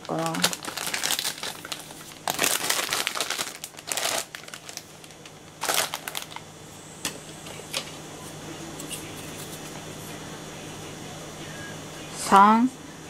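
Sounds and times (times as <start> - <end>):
plastic packaging crinkling: 0.0 - 6.5.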